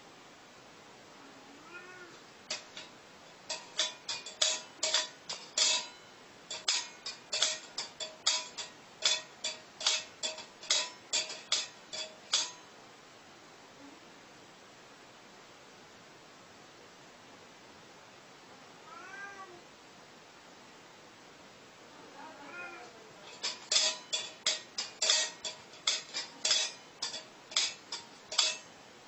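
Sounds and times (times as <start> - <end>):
faint cat meow: 1.2 - 2.2, 18.8 - 19.7, 21.9 - 23.1
metal bowl clinking: 2.5 - 12.7, 23.2 - 28.8.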